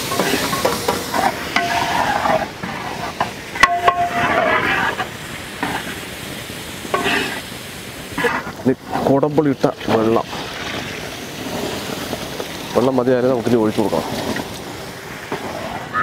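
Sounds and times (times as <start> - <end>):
spatula scraping pot bottom: 0.0 - 6.0
oil sizzling: 0.0 - 16.0.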